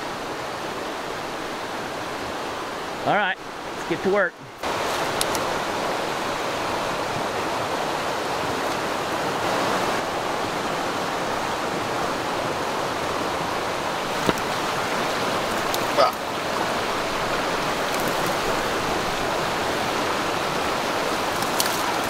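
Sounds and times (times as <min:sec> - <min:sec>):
running water rushing: 0:00.0 - 0:22.0.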